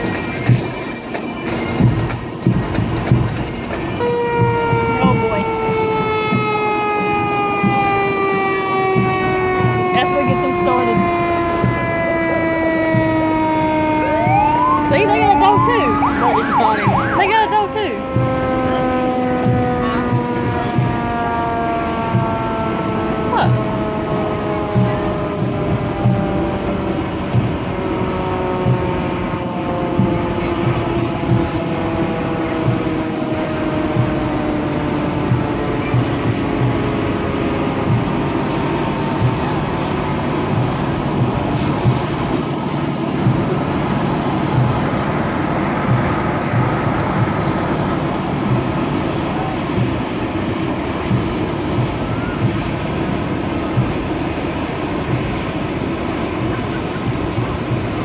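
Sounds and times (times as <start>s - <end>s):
fire engines running: 0.0s - 58.0s
siren winding down: 4.0s - 37.8s.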